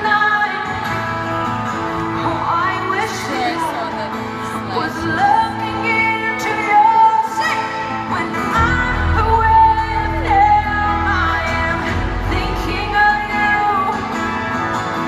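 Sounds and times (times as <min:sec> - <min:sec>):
acoustic guitar: 0:00.0 - 0:15.0
woman singing live: 0:00.0 - 0:15.0
bass and band playing: 0:08.0 - 0:15.0.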